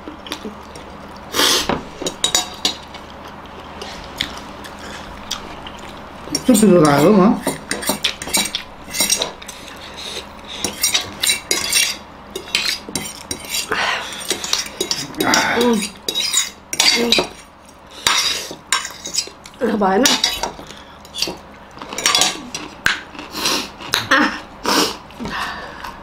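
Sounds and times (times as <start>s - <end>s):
forks clinking on plates: 20.0s - 22.7s.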